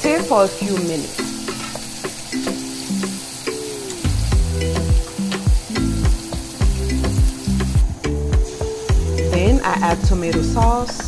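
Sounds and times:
vegetables sizzling in oil: 0.0s - 11.0s
background music with beat: 0.2s - 11.0s.

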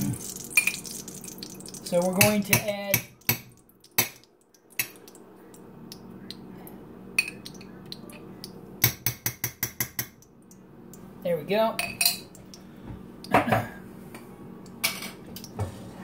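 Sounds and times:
metal spoon tapping on pan: 8.8s - 10.2s.

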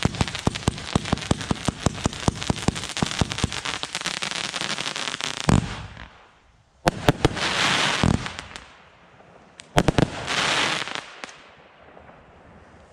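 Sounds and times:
firework bangs: 0.0s - 6.3s, 6.9s - 8.7s, 9.6s - 12.2s
firework crackling: 0.0s - 8.8s, 9.6s - 12.9s.

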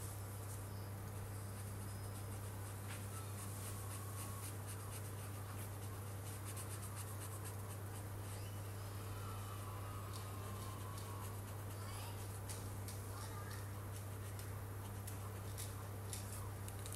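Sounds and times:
marker rubbing on paper: 1.6s - 8.1s.

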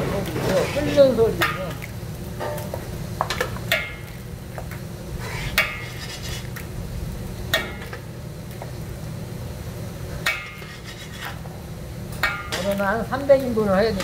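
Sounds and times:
steady low hum: 0.0s - 14.0s
metal spatula scraping on griddle: 0.3s - 1.6s, 5.2s - 6.6s, 10.2s - 11.5s.

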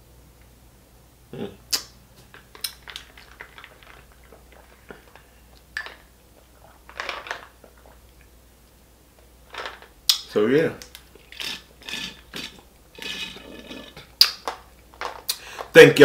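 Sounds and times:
fingers being licked: 1.7s - 2.0s
drinking from plastic bottle: 11.1s - 14.3s.

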